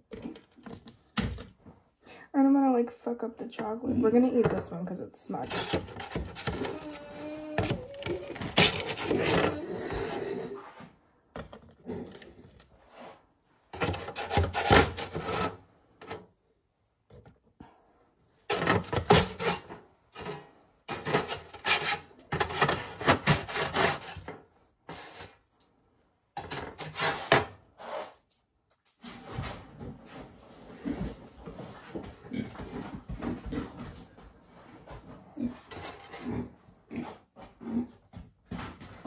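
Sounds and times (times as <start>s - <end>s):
spatula scraping metal baking sheet: 5.3s - 10.7s, 13.8s - 15.6s, 18.5s - 24.3s, 26.4s - 28.2s.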